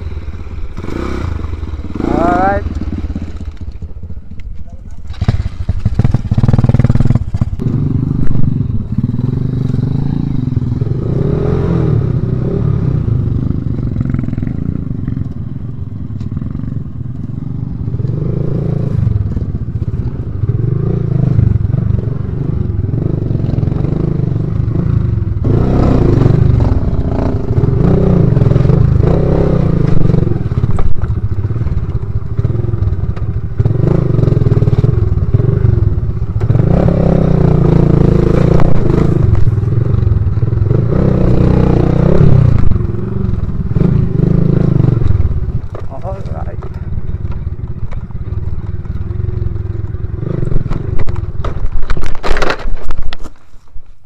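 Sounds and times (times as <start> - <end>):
motorcycle engine revving: 0.0 - 53.1
bike rattling on rocks: 50.6 - 54.0.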